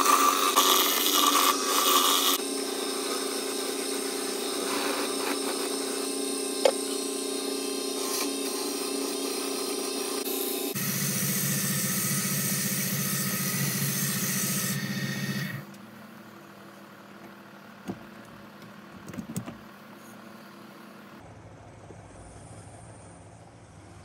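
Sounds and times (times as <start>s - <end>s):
sandpaper sanding hiss: 0.0s - 6.4s
lathe motor hum: 0.0s - 16.9s
light knocks on wood: 17.8s - 19.6s.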